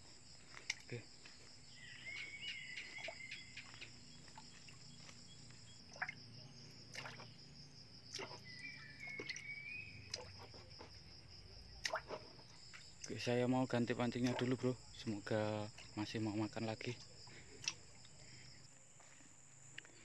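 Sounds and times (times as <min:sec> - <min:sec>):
wading through shallow water: 0:00.0 - 0:19.4
insects droning: 0:00.0 - 0:20.0.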